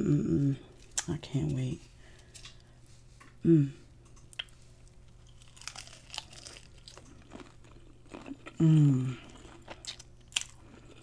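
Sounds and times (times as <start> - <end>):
crunchy chewing: 4.2 - 11.0.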